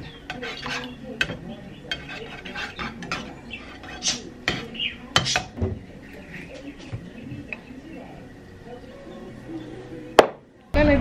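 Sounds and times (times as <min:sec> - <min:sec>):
spatula scraping and tapping pan: 0:00.0 - 0:07.7.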